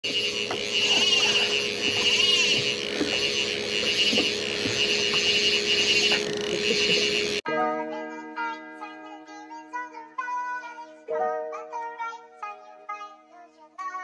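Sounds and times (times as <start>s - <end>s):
low hum: 0.0s - 7.4s
fishing reel drag buzzing: 0.0s - 7.5s.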